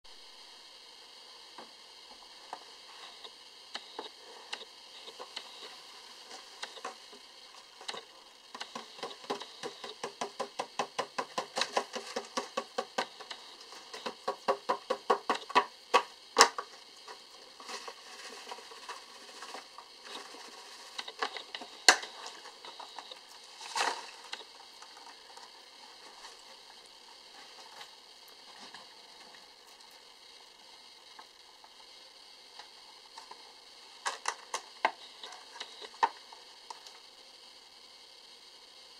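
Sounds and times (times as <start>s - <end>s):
rapid plastic clicks: 7.8s - 17.2s.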